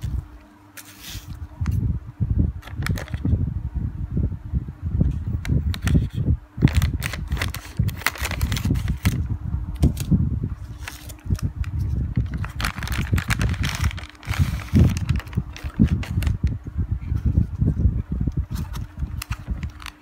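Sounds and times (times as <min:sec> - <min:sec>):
plastic sachet crinkling: 0:02.6 - 0:03.2, 0:05.7 - 0:09.2, 0:10.7 - 0:16.5, 0:18.6 - 0:20.0.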